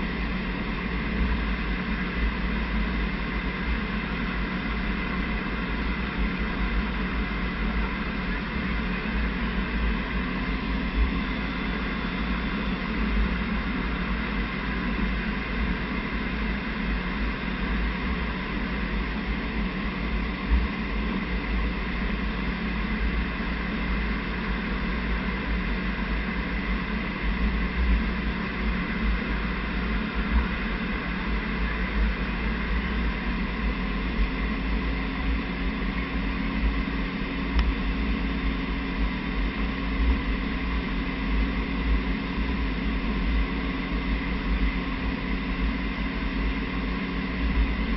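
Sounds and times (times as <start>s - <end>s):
jet cockpit engine and airflow drone: 0.0s - 47.9s
low hum: 23.0s - 42.7s.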